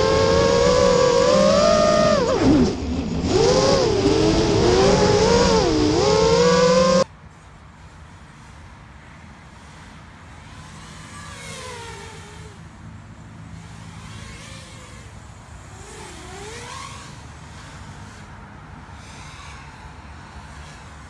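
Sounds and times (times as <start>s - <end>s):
drone propeller whine: 0.0s - 7.0s.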